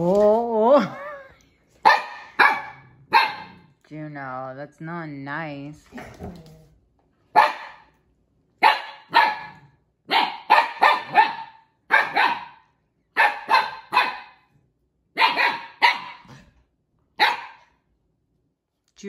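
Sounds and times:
puppy barking: 0:01.8 - 0:03.7, 0:07.3 - 0:08.0, 0:08.6 - 0:14.5, 0:15.1 - 0:16.4, 0:17.2 - 0:17.8.

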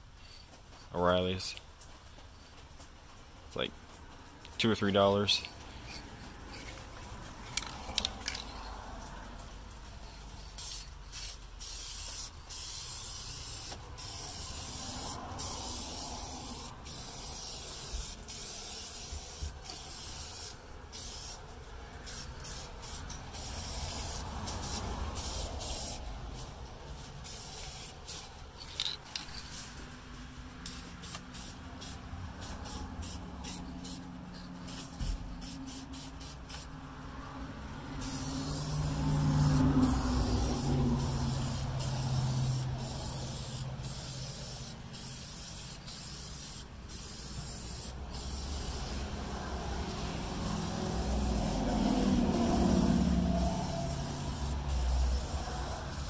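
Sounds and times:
aerosol can spray hissing: 0:10.6 - 0:21.4, 0:22.1 - 0:26.1, 0:27.2 - 0:28.2, 0:30.6 - 0:36.7, 0:38.0 - 0:49.2, 0:50.4 - 0:56.0.

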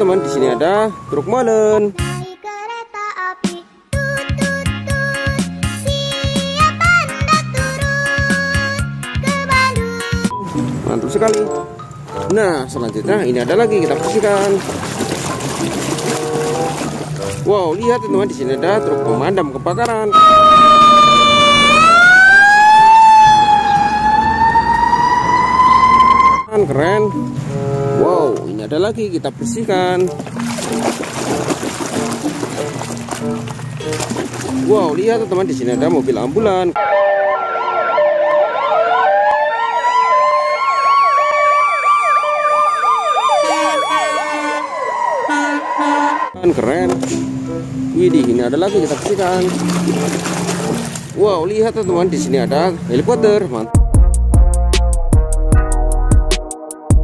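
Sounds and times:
fire truck siren wailing: 0:20.0 - 0:26.5, 0:36.8 - 0:46.4.

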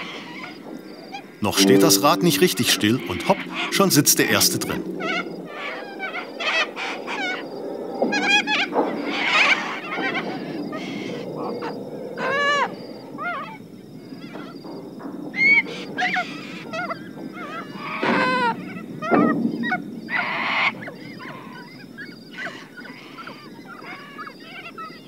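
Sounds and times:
flock of birds squawking: 0:15.4 - 0:25.0.

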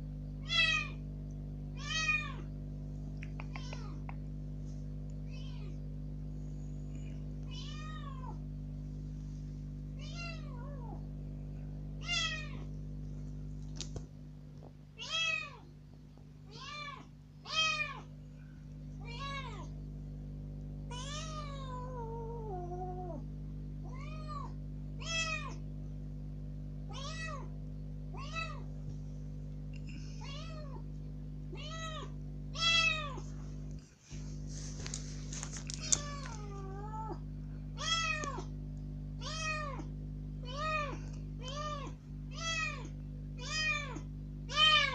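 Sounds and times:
kitten meowing loudly: 0:01.8 - 0:02.4, 0:12.0 - 0:12.6, 0:23.9 - 0:25.6.

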